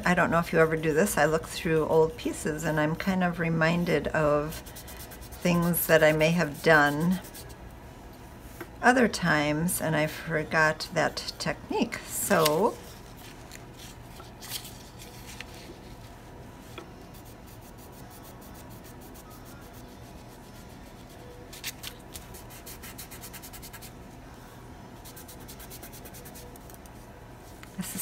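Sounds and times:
pencil scratching on paper: 4.4s - 7.5s.

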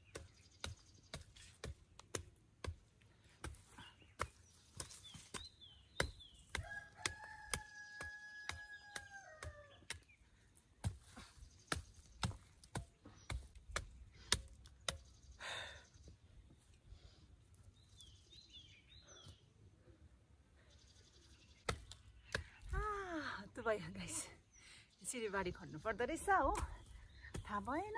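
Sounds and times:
hand fork chopping hard soil: 0.0s - 15.2s
small bird chirping: 3.8s - 10.4s
rooster crowing: 6.6s - 9.8s.

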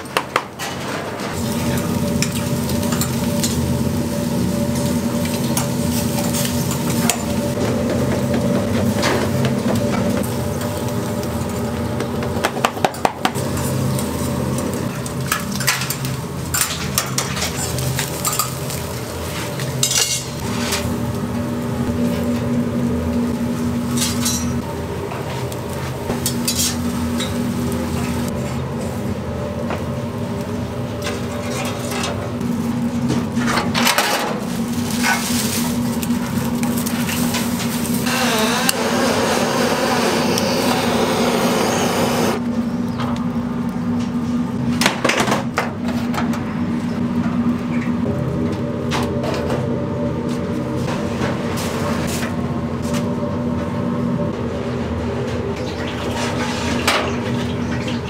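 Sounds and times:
steady mechanical hum: 0.0s - 58.0s
rushing hissing noise: 38.0s - 42.4s.

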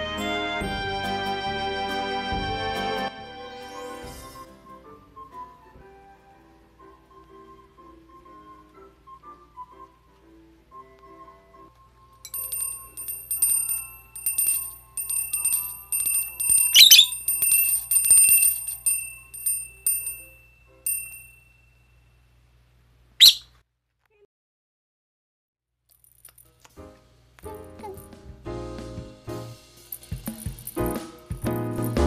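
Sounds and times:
hand bell ringing: 12.3s - 22.0s, 29.9s - 32.0s.

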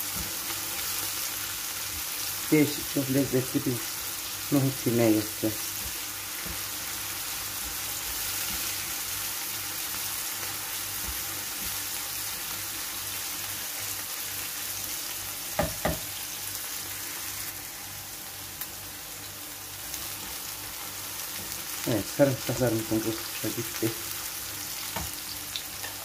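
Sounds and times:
food sizzling in frying pan: 0.0s - 26.0s.

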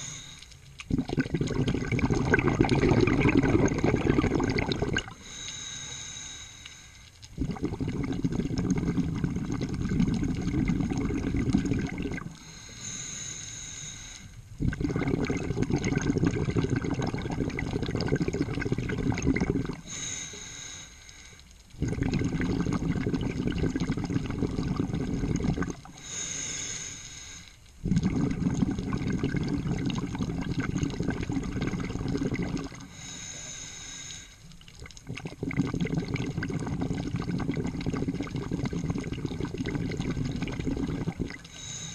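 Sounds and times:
regulator inhale: 0.0s - 0.6s, 5.1s - 7.2s, 12.3s - 14.5s, 19.8s - 21.5s, 25.9s - 27.6s, 32.8s - 34.5s, 41.4s - 41.9s
exhaled bubbles rushing: 0.8s - 5.2s, 7.3s - 12.4s, 14.6s - 20.0s, 21.8s - 26.0s, 27.8s - 32.9s, 34.6s - 41.6s.

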